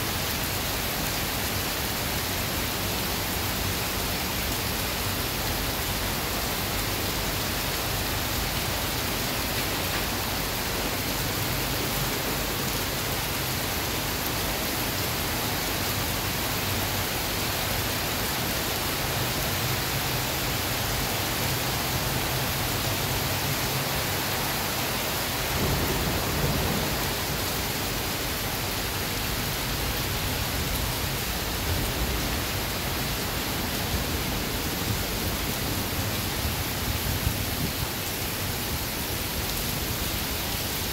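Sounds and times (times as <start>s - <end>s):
heavy rain pouring: 0.0s - 40.9s.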